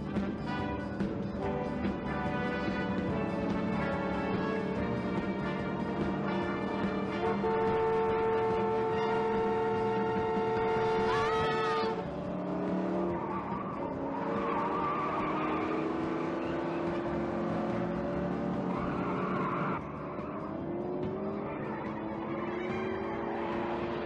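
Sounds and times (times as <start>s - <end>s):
car engines revving: 0.0s - 24.0s
road noise: 0.0s - 24.0s
held horn-like tone: 7.0s - 12.0s
tyre squeal: 13.0s - 17.1s, 18.7s - 20.6s, 21.4s - 23.6s.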